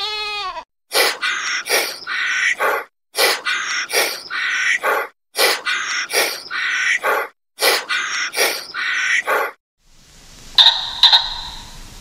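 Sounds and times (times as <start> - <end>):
short animal calls: 10.6 - 11.7.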